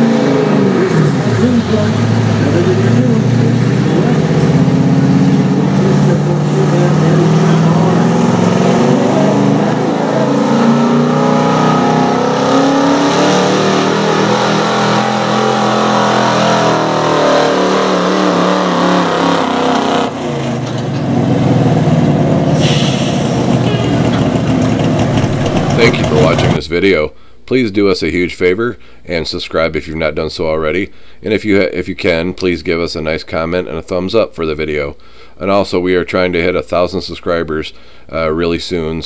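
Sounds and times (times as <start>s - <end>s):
truck engine at high revs: 0.0s - 26.6s.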